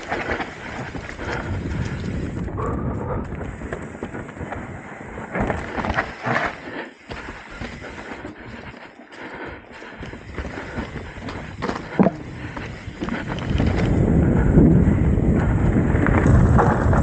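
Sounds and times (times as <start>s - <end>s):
wind rumble on microphone: 0.0s - 6.1s, 10.0s - 17.0s
bike rattling: 0.0s - 17.0s
bike tyres crunching over stones: 0.0s - 17.0s.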